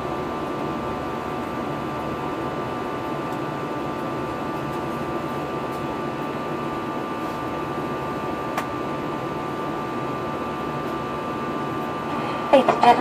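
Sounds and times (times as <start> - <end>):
airliner cabin engine hiss: 3.0 - 7.8.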